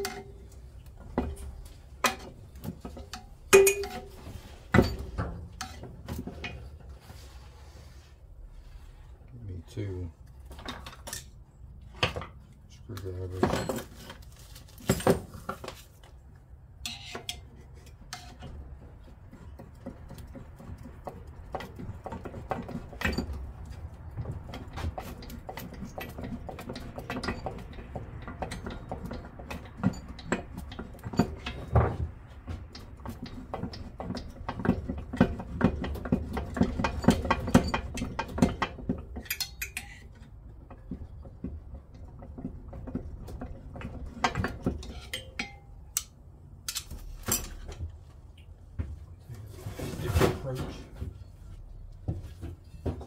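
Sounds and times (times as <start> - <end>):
metal tools clinking on engine parts: 0.0 - 6.9, 13.3 - 16.0, 16.8 - 19.8, 21.6 - 32.1, 35.4 - 41.3, 43.4 - 47.8.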